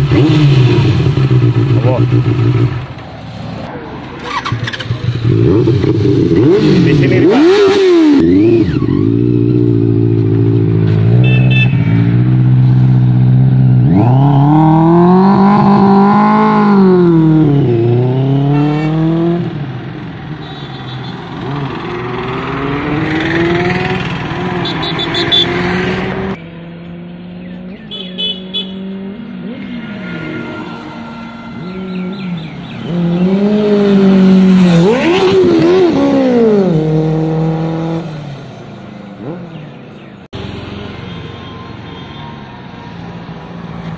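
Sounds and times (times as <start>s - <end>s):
motorcycle engine revving: 0.0s - 3.1s, 4.0s - 20.4s, 21.0s - 38.5s, 39.1s - 41.0s
motorcycle accelerating through gears: 4.2s - 11.1s, 12.1s - 19.8s, 21.3s - 27.8s, 31.6s - 38.3s.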